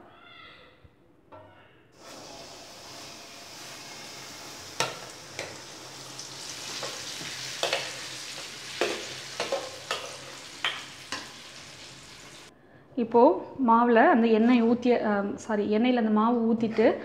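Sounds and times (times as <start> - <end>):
batter sizzling in hot oil: 2.0 - 12.5.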